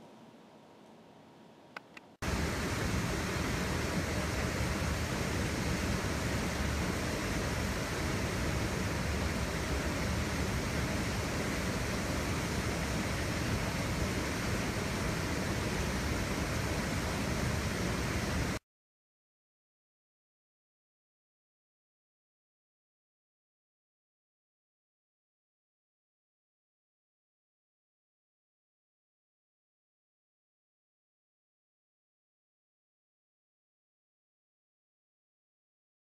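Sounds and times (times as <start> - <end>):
steady static hiss: 0.0 - 18.6
small clicks: 1.7 - 2.2.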